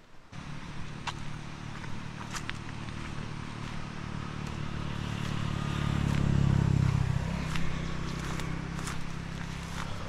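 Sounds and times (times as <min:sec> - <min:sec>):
engine running steadily: 0:00.3 - 0:10.0.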